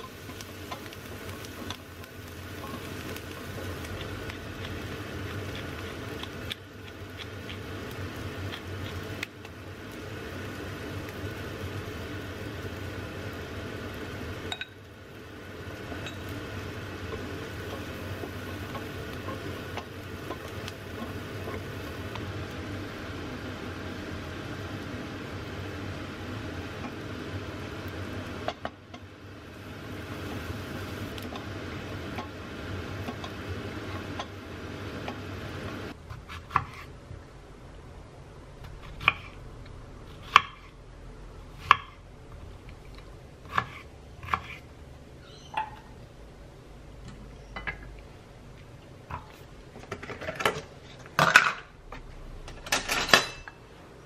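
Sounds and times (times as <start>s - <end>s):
frying pan sizzling: 0.0s - 36.4s.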